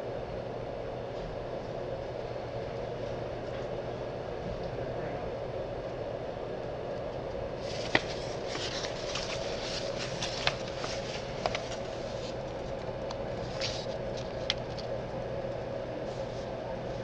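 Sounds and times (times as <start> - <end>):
mechanical hum: 0.0 - 17.0
rustling: 7.6 - 14.9.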